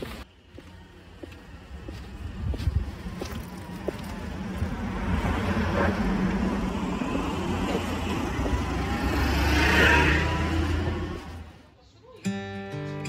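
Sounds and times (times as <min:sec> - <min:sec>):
car driving past: 0:02.9 - 0:11.6.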